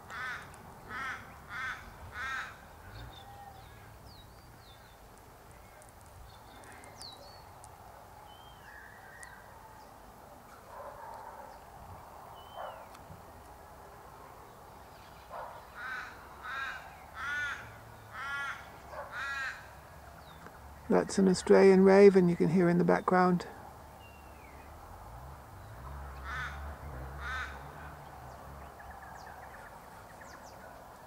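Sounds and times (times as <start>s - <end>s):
raven cawing: 0.0s - 3.8s, 15.6s - 20.0s, 26.2s - 27.9s
small birds chirping: 0.0s - 31.0s.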